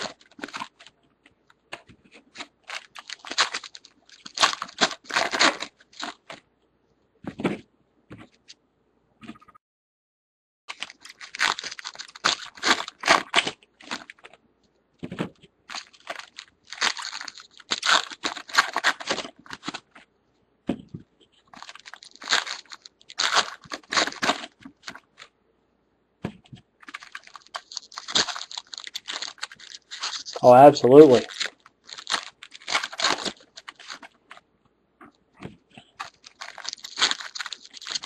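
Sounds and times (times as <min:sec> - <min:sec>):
foil wrappers crinkling and tearing: 0:00.0 - 0:00.9, 0:02.2 - 0:06.4, 0:10.7 - 0:14.3, 0:15.7 - 0:20.0, 0:21.5 - 0:25.3, 0:26.8 - 0:34.2, 0:35.8 - 0:38.0.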